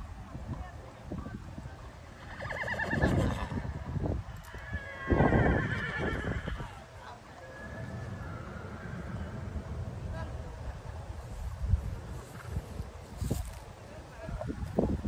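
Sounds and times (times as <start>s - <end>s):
horse whinnying: 2.2s - 3.7s, 4.4s - 6.8s, 7.4s - 9.5s.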